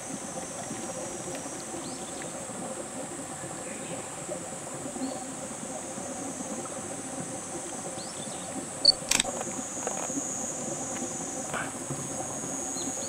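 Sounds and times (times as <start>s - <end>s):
high insect drone: 0.0s - 4.3s, 4.9s - 13.0s
stream trickling over stones: 0.0s - 13.0s
camera shutter click: 8.9s - 9.4s.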